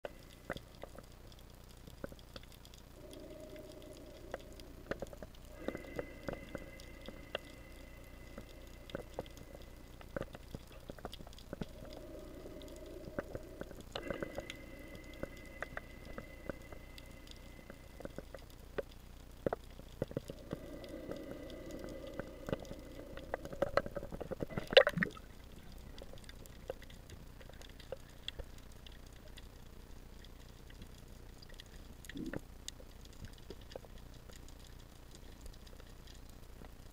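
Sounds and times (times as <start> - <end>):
low hum: 0.0 - 33.1
underwater clicks and crackles: 0.1 - 36.9
faint high whine: 2.9 - 26.0.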